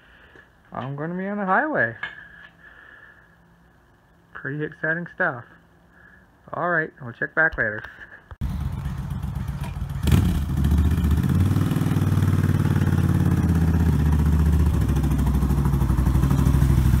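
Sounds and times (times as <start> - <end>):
motorcycle engine running: 8.4 - 17.0.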